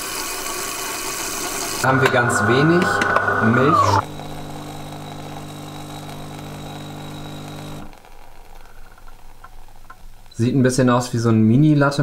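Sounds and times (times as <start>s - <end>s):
coffee machine pump humming: 0.8s - 8.1s.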